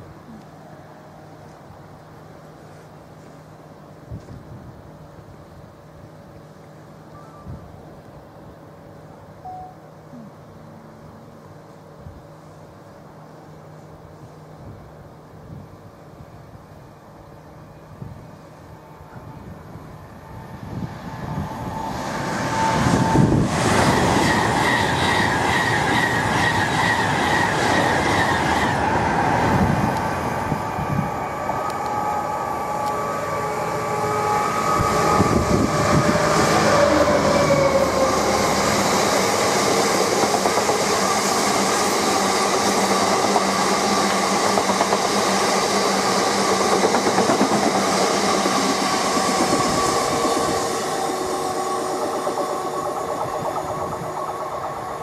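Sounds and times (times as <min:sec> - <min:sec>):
freight train passing: 0:00.0 - 0:55.0
wheels clattering on rails: 0:42.4 - 0:55.0.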